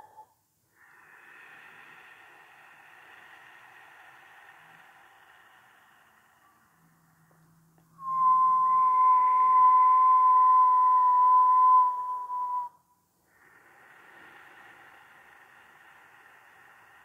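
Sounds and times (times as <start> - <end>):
person whistling a long note: 8.0 - 12.9.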